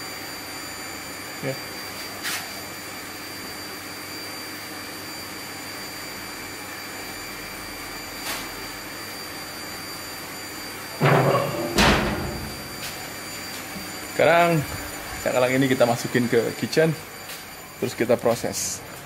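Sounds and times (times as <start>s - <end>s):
mechanical hum: 0.0s - 19.0s
metal tray scraping and clattering: 11.0s - 12.8s.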